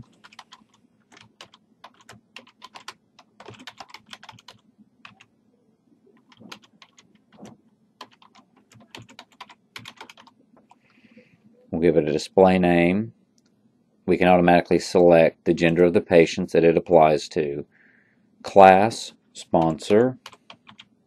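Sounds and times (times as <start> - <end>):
computer keyboard typing: 0.0 - 5.3, 6.2 - 10.8, 19.6 - 20.9.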